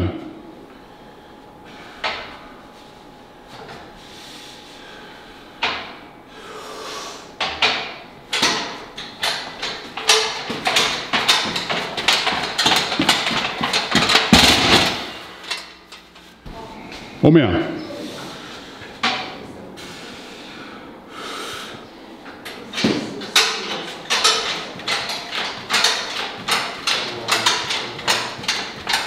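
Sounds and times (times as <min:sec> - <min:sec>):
weight plates clanking: 0:07.4 - 0:16.0, 0:22.4 - 0:29.0.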